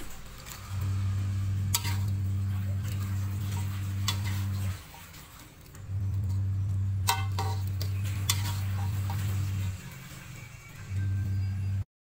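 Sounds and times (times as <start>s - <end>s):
steady low hum: 0.0s - 10.3s, 10.9s - 11.9s
metal spatula stirring in a wok: 1.2s - 5.0s, 6.2s - 10.5s.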